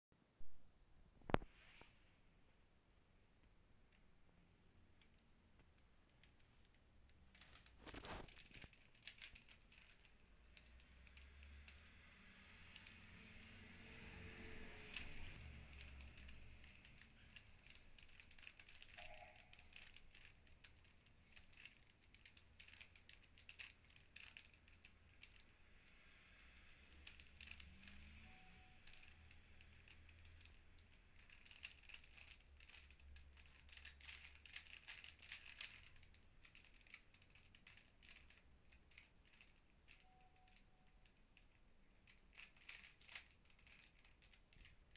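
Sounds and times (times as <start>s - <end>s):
puzzle cube clicking: 7.3s - 11.9s, 12.7s - 26.0s, 26.8s - 44.8s.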